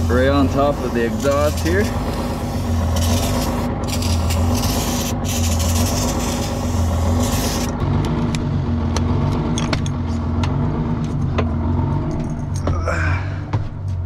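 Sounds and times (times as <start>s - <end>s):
aerosol can spraying: 0.0s - 7.7s
low engine hum: 0.0s - 14.0s.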